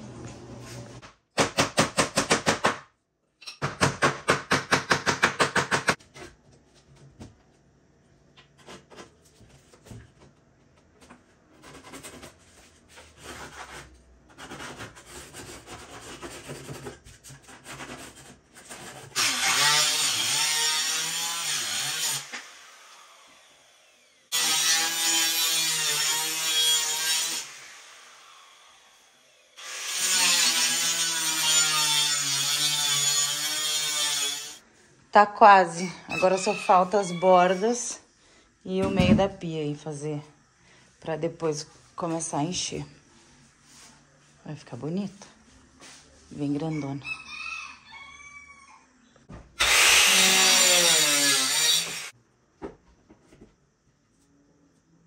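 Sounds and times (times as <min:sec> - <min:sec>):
circular saw cutting wood: 0:17.6 - 0:34.6, 0:36.1 - 0:37.9, 0:49.6 - 0:52.2.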